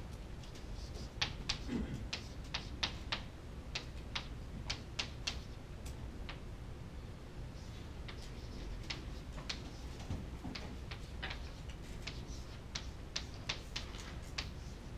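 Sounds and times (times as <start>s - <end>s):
chalk tapping on chalkboard: 0.5s - 5.5s, 8.1s - 14.7s.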